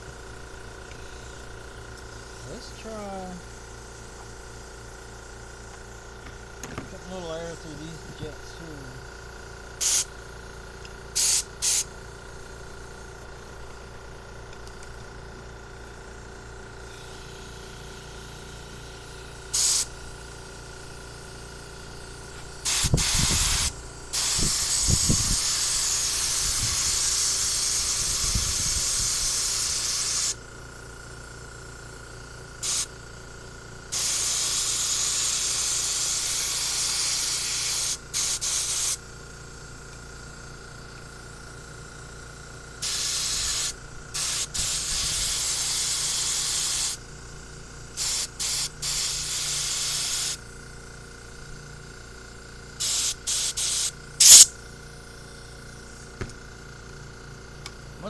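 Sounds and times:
compressed air hissing: 0.8s - 6.2s, 9.8s - 10.2s, 11.1s - 11.9s, 16.8s - 17.8s, 18.4s - 20.0s, 22.2s - 30.4s, 32.6s - 33.0s, 33.9s - 39.6s, 42.8s - 50.5s, 52.8s - 54.6s.

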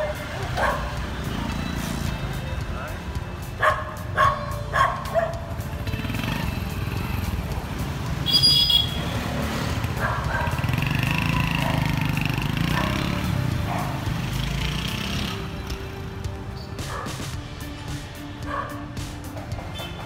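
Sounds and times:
motorcycle engine riding off: 4.8s - 17.4s.

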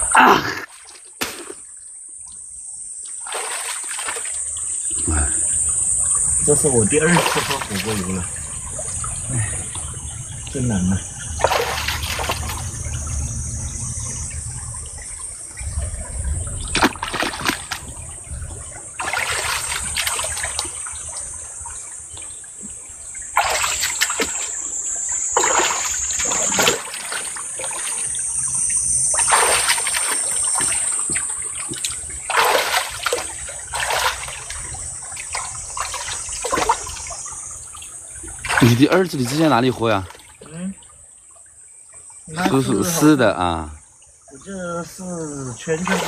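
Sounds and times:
stream trickling: 0.0s - 46.0s
hands splashing in water: 0.7s - 1.7s, 3.2s - 4.4s, 7.1s - 8.2s, 11.4s - 12.7s, 16.7s - 17.9s, 19.0s - 20.6s, 23.4s - 24.6s, 25.4s - 28.1s, 29.2s - 34.6s, 35.2s - 37.0s, 45.8s - 46.0s.

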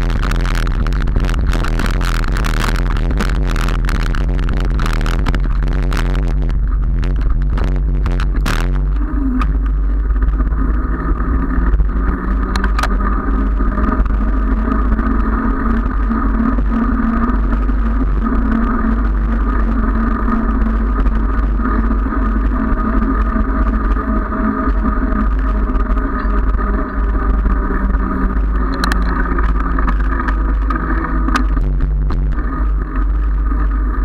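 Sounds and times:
bicycle tyres rolling on asphalt: 0.0s - 34.0s
wind rushing over microphone: 0.0s - 34.0s.

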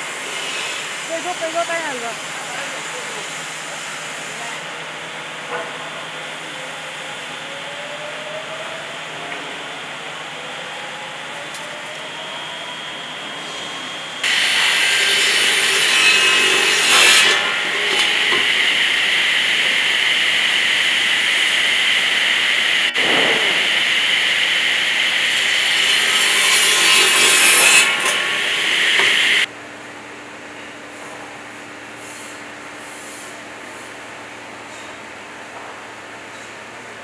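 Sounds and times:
mill machinery hum: 0.0s - 37.0s
circular saw cutting wood: 13.5s - 29.5s.

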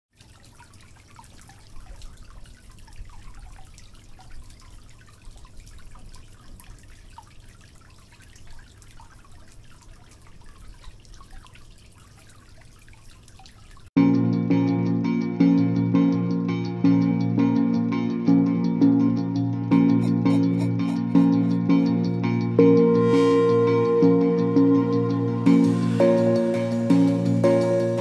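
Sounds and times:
tabletop fountain water splashing: 0.1s - 14.0s
water dripping: 0.1s - 14.0s.

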